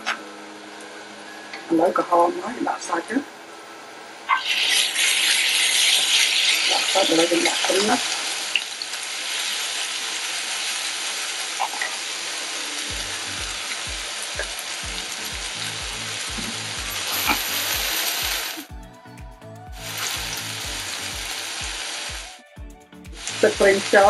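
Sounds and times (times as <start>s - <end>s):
meat sizzling in a frying pan: 4.3s - 18.7s, 19.7s - 22.3s, 23.1s - 24.0s.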